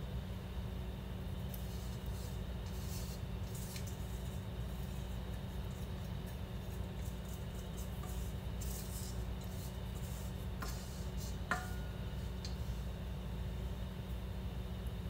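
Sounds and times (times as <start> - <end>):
low steady hum: 0.0 - 15.0
spatula scraping metal bowl: 1.5 - 12.9.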